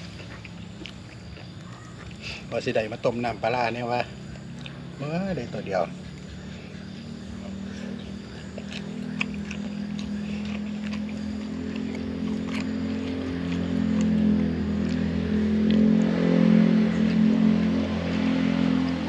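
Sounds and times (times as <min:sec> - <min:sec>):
eating by hand clicks and smacks: 0:00.0 - 0:02.3, 0:04.4 - 0:04.8, 0:07.0 - 0:19.0
motor engine droning: 0:00.0 - 0:19.0.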